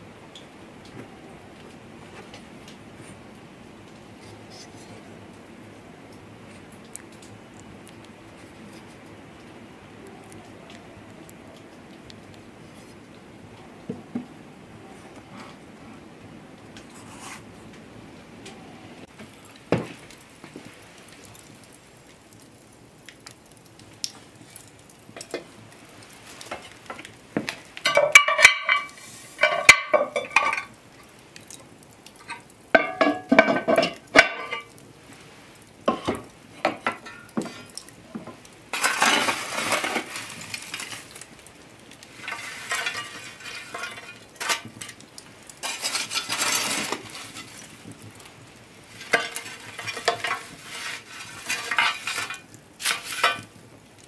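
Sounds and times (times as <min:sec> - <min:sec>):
metal shovel scraping coals: 0:00.3 - 0:03.2, 0:03.9 - 0:05.2, 0:06.2 - 0:09.5, 0:14.3 - 0:16.0, 0:16.6 - 0:17.8, 0:18.4 - 0:54.0
coals clinking on iron lid: 0:24.5 - 0:34.8, 0:35.8 - 0:41.3, 0:42.1 - 0:48.2, 0:48.8 - 0:53.6
cast-iron pot lid clanking: 0:27.9 - 0:30.7, 0:32.8 - 0:34.7.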